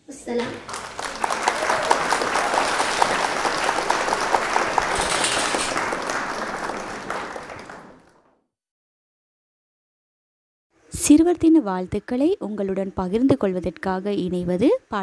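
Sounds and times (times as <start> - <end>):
crowd applause: 0.6 - 8.4.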